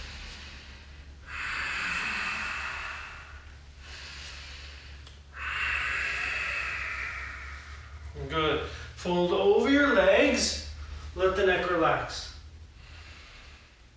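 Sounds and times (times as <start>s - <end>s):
man breathing loudly: 0.0s - 9.1s, 12.3s - 13.9s.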